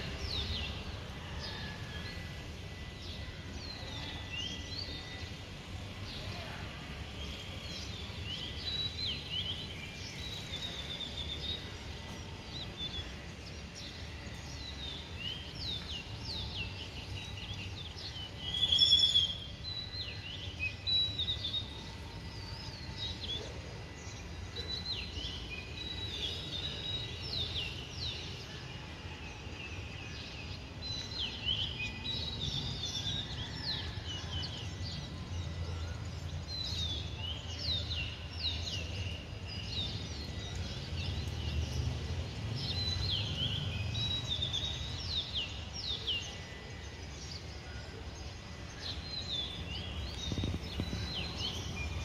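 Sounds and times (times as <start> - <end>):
small birds chirping: 34.5 - 52.0.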